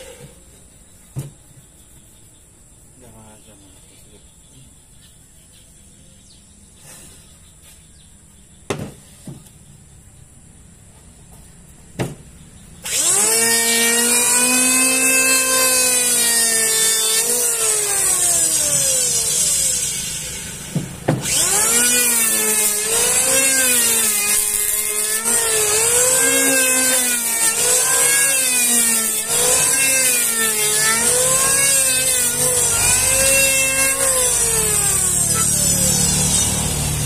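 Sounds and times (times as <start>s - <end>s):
electric planer shaving wood: 12.8s - 37.0s.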